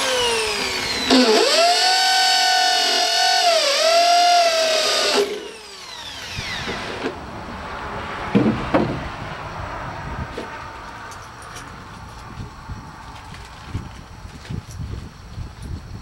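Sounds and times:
electric drill whining into steel: 0:00.0 - 0:07.2.

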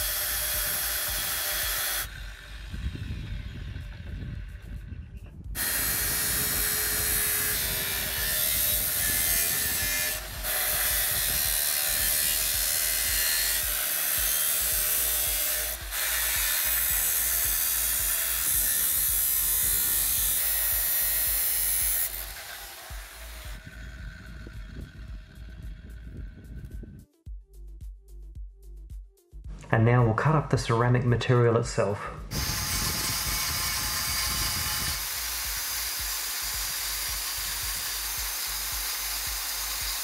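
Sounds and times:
power tool cutting metal: 0:00.0 - 0:04.6, 0:05.6 - 0:26.0, 0:32.3 - 0:40.0.

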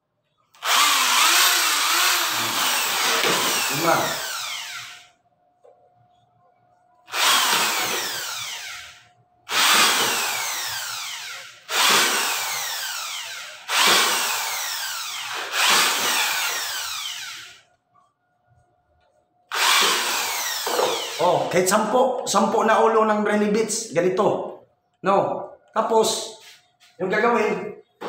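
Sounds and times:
electric drill whining: 0:00.5 - 0:05.2, 0:07.1 - 0:17.6, 0:19.5 - 0:21.5.

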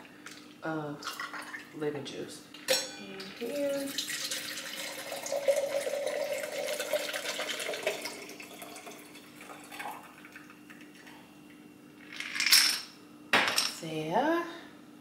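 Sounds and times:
liquid pouring into a glass: 0:03.5 - 0:11.2.

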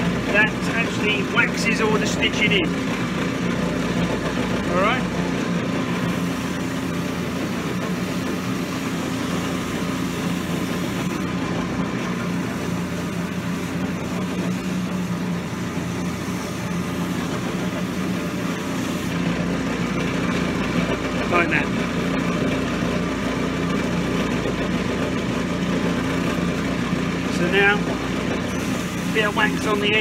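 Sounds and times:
shoe finishing machine humming: 0:00.0 - 0:30.0
boot sole polished on wheel: 0:05.9 - 0:19.2, 0:28.4 - 0:30.0.

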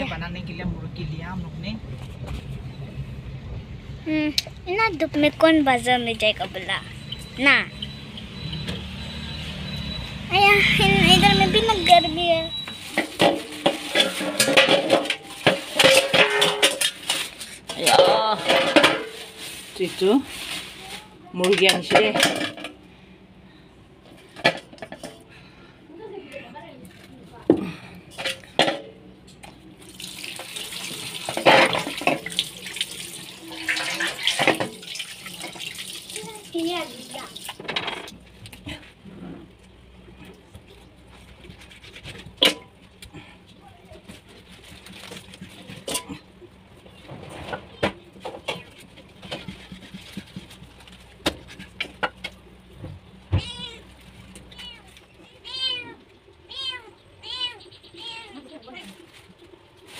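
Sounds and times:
tap water pouring into bowl: 0:29.8 - 0:36.5
cat meowing: 0:53.3 - 0:53.9, 0:54.5 - 0:58.5.

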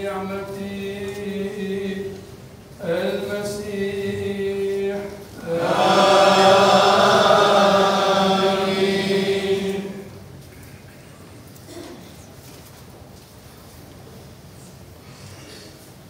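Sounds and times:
man singing a chant: 0:00.0 - 0:06.7.

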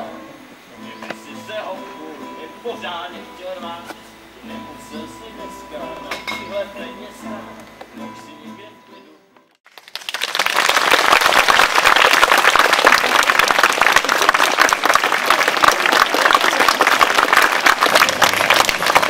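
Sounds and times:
crowd clapping: 0:09.6 - 0:19.0.

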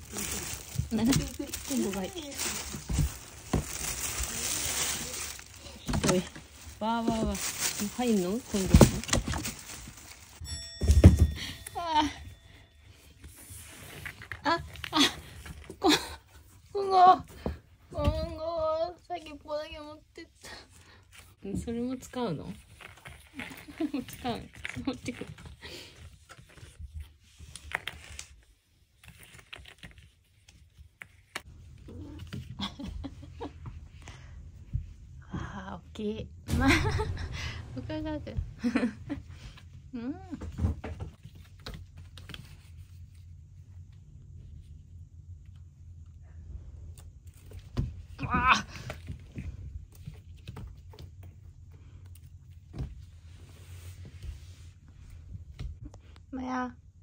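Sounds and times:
low steady hum: 0:31.5 - 0:57.0
loud thump: 0:36.5 - 0:39.4.

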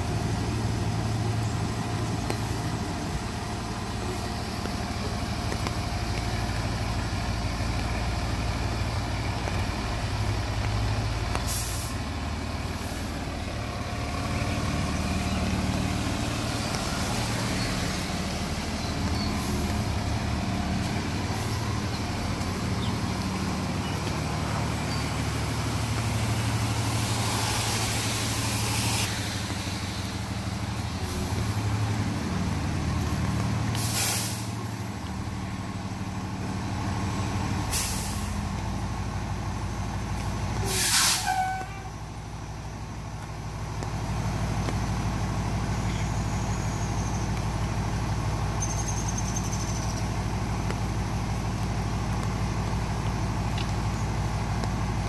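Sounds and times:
diesel engines idling: 0:00.0 - 0:55.0
air brake hisses: 0:11.4 - 0:12.0, 0:33.7 - 0:34.6, 0:37.7 - 0:38.4, 0:40.6 - 0:41.7.

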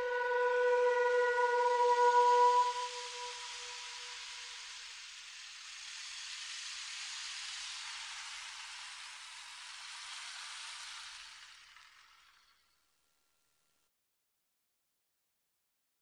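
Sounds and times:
steady hiss: 0:00.0 - 0:12.8.

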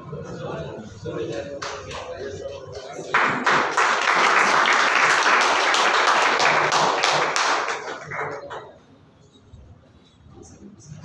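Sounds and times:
audience applause: 0:03.1 - 0:08.7.

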